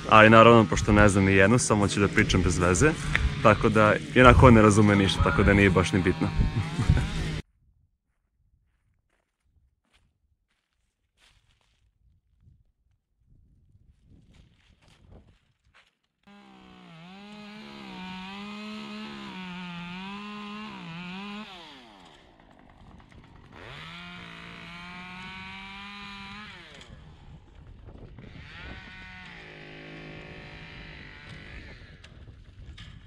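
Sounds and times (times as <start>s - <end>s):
chainsaw revving: 0.0s - 7.4s, 16.3s - 32.6s.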